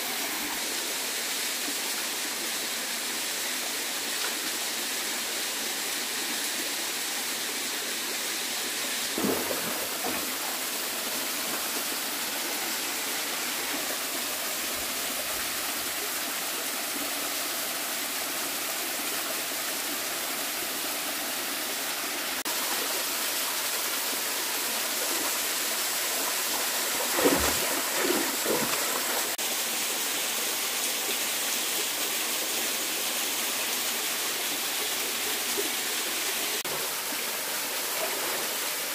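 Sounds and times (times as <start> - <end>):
stream running: 0.0 - 38.9
net splashing in water: 27.0 - 29.4.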